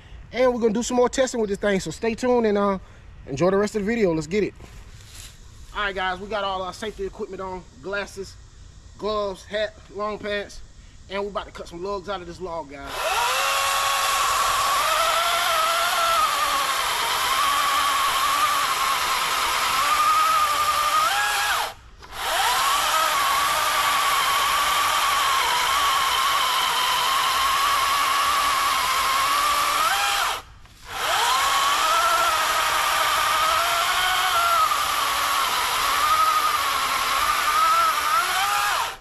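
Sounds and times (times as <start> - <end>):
electric chainsaw cutting log: 12.9 - 39.0.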